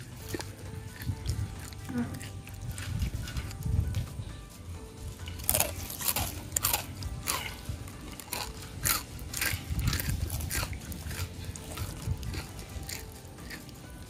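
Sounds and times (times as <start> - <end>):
children crunching crisps: 0.0 - 14.0.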